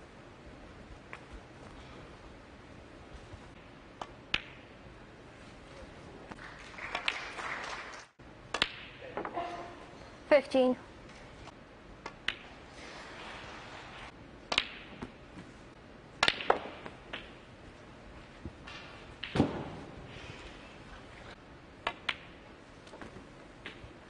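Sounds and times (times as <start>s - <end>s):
snooker balls clicking: 12.0s - 12.5s, 14.4s - 15.2s, 21.8s - 23.9s.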